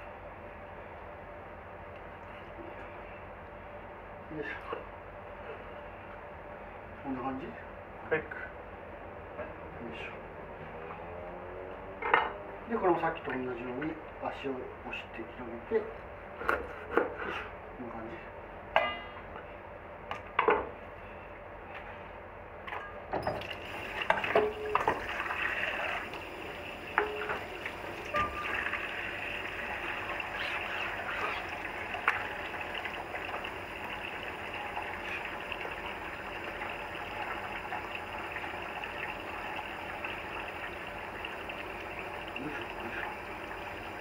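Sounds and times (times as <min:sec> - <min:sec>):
water running from a tap: 0:23.2 - 0:44.0.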